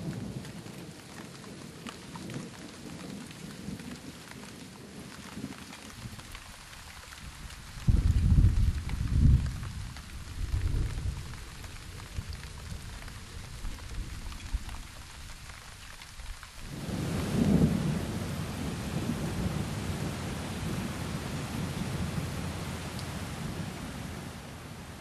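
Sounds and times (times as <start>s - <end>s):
rain falling: 0.0s - 25.0s
thunder rumbling: 16.7s - 25.0s.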